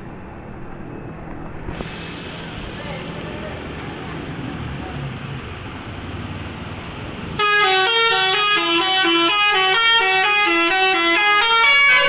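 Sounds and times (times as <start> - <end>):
bus engine rumble: 0.0 - 12.0
musical air horn tune: 7.4 - 12.0.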